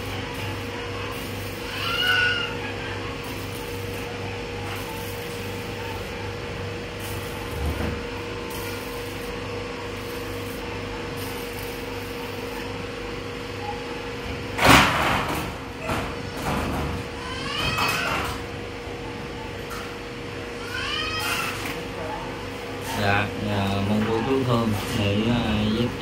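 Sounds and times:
steady background hum: 0.0 - 26.0.

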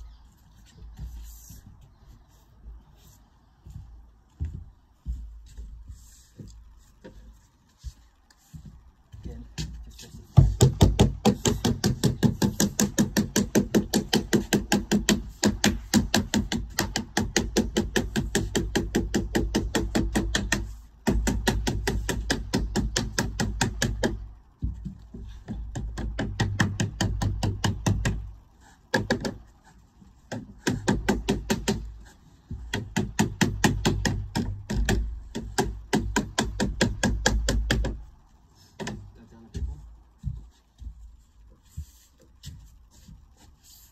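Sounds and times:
rapid hand hammering: 10.4 - 38.2.

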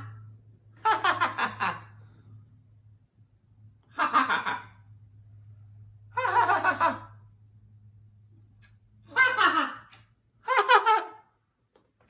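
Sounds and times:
macaw mimicking laughter: 9.1 - 11.2.

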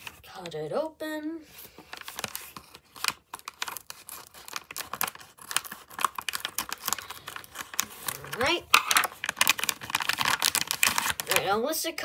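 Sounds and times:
packaging crinkling: 1.5 - 11.5
scissors cutting foil packet: 2.0 - 11.5.

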